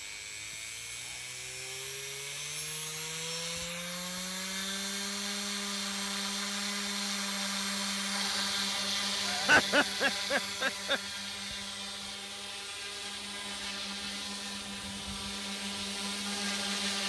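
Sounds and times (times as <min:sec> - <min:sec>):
quadcopter motor whine: 0:03.8 - 0:09.3.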